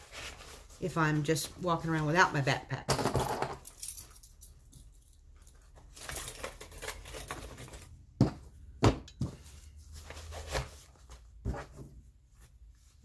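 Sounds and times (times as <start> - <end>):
gear rustling and crinkling: 0.0 - 2.2, 3.6 - 8.0.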